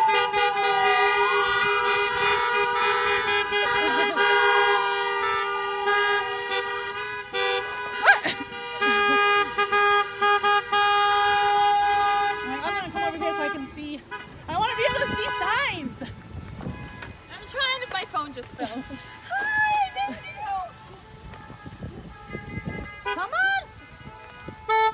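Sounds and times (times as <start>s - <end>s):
siren wailing: 0.0s - 4.8s
car horns honking: 0.0s - 24.9s.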